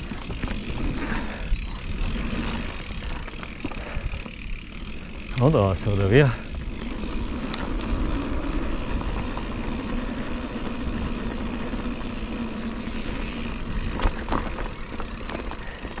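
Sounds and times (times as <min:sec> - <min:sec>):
bike tyres rumbling on dirt: 0:00.0 - 0:16.0
thin high whine: 0:00.0 - 0:16.0.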